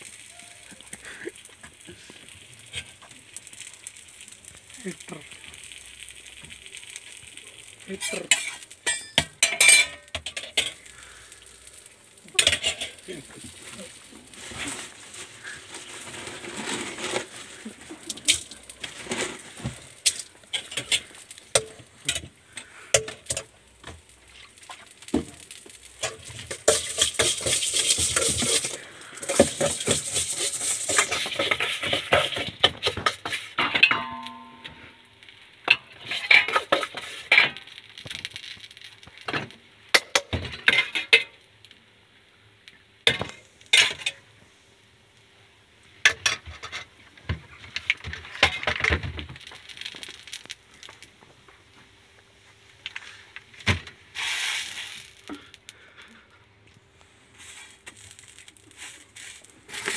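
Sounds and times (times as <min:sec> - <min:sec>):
burger patties sizzling: 0:00.0 - 0:59.9
metal utensils scraping a griddle: 0:07.9 - 0:11.2, 0:12.3 - 0:23.5, 0:25.4 - 0:35.0, 0:35.7 - 0:37.6, 0:39.9 - 0:41.3, 0:43.1 - 0:44.2, 0:57.4 - 0:59.9.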